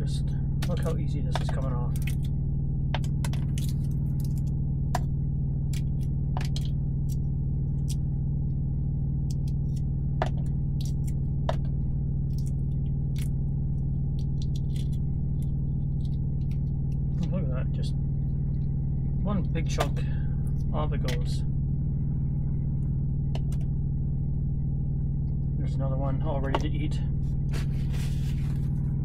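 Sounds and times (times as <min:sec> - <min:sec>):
steady low drone: 0:00.0 - 0:29.0
eggshell cracking and crinkling: 0:00.6 - 0:02.4, 0:03.0 - 0:08.2, 0:09.2 - 0:17.2.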